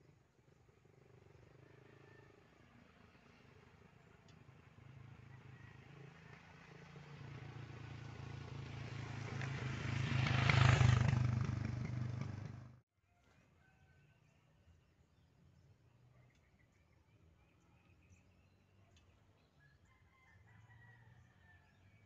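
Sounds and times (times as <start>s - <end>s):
vehicle engine passing close: 0.8s - 12.8s.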